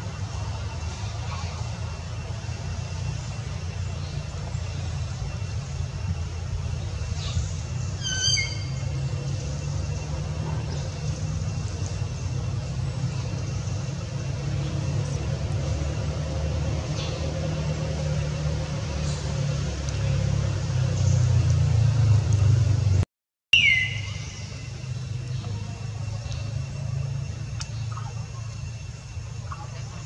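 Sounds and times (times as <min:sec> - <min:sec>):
low rumble of traffic: 0:00.0 - 0:23.0, 0:23.6 - 0:30.0.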